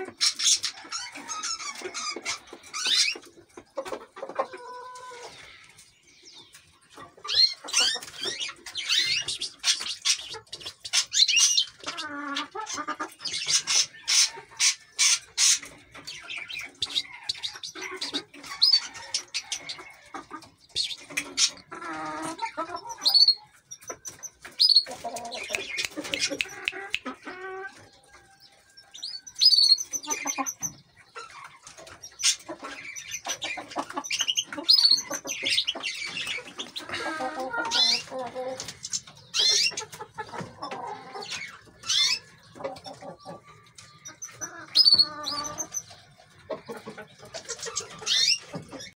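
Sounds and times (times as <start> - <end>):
finches chirping and trilling: 0.0 - 4.5, 5.1 - 48.9
lower-pitched bird calls: 43.8 - 45.9.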